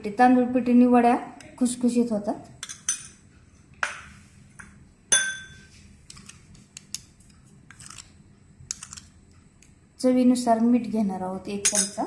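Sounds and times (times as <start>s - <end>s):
spoon clinking against bowl: 5.1s - 5.7s, 11.6s - 12.0s
spoon tapping and scraping: 11.6s - 12.0s.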